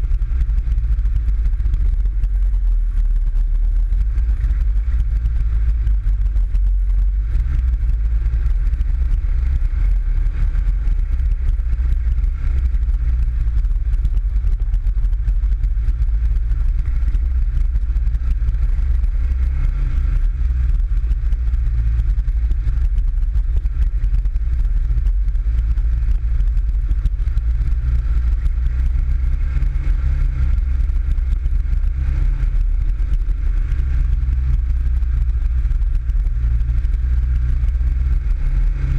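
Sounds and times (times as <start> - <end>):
buggy engine rumbling: 0.0 - 38.9.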